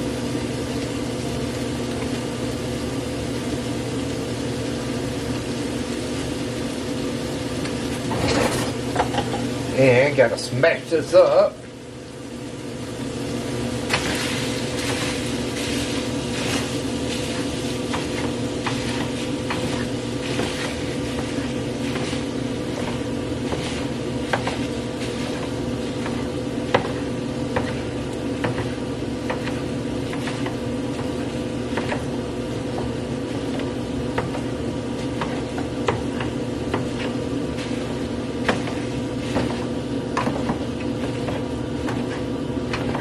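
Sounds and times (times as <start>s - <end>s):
meat sizzling in a skillet: 0.0s - 41.3s
steady low hum: 0.0s - 43.0s
spatula scraping pan: 13.9s - 43.0s.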